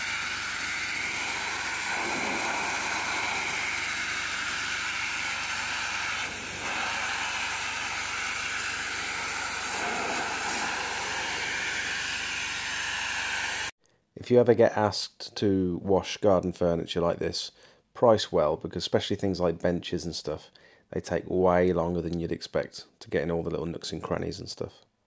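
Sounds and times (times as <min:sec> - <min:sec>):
pressure washer water jet hissing: 0:00.0 - 0:13.7.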